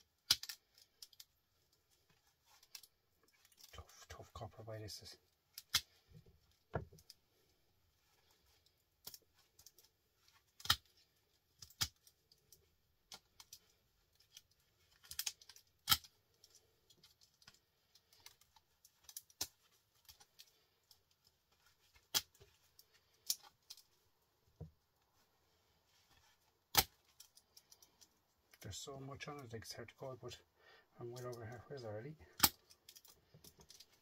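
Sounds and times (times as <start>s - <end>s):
hand tools clicking and snapping: 0.2s - 1.3s, 14.2s - 16.1s.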